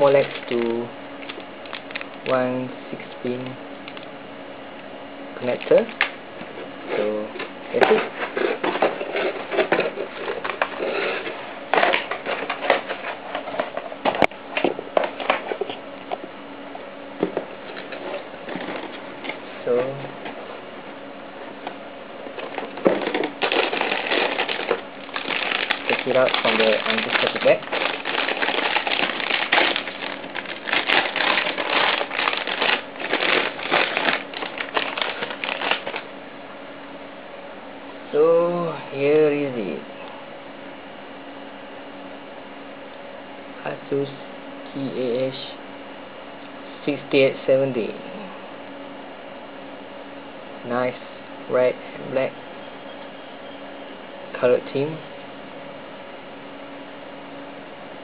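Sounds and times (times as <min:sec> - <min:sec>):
anti-static bag crinkling: 0:00.0 - 0:02.4, 0:22.3 - 0:36.1
cardboard rustling and scraping: 0:06.4 - 0:15.8, 0:22.3 - 0:36.1.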